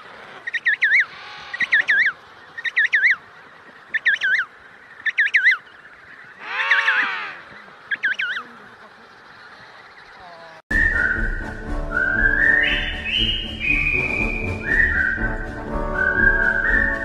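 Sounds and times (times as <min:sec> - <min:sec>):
penguin lower fuller call: 0:06.4 - 0:07.5
penguin chick whistled trills: 0:10.7 - 0:17.0.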